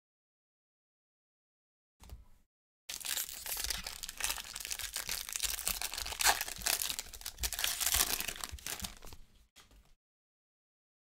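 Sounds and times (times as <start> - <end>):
foil wrapper tearing and crinkling: 2.9 - 9.2.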